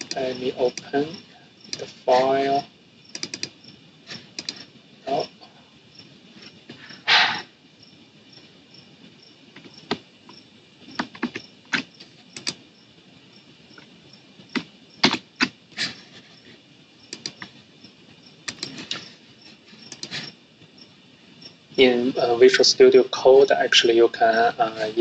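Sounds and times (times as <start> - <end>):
mouse and keyboard clicks: 3.1 - 3.5, 4.3 - 4.6, 11.0 - 12.6, 17.1 - 17.5, 18.5 - 19.0, 19.9 - 20.2.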